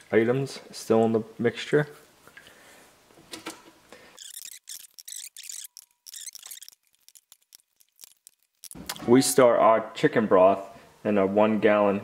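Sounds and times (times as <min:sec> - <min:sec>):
crackly hiss: 0:04.2 - 0:09.0.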